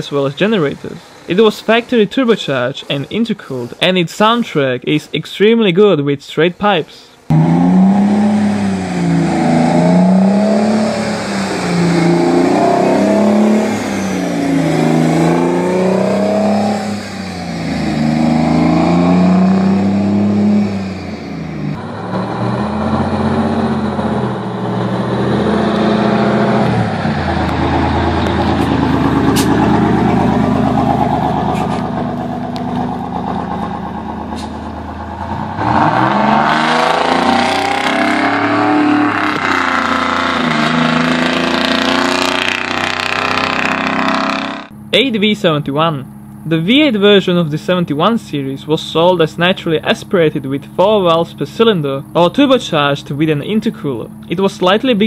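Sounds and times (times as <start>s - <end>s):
diesel truck accelerating: 0.0s - 4.3s, 7.3s - 55.0s.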